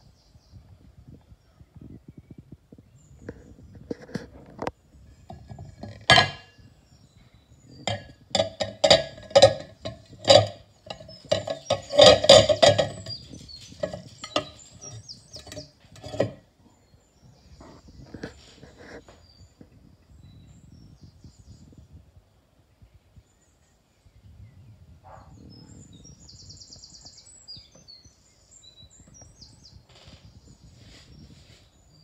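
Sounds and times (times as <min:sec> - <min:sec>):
objects knocking and clicking: 0:05.3 - 0:06.5, 0:07.8 - 0:16.4.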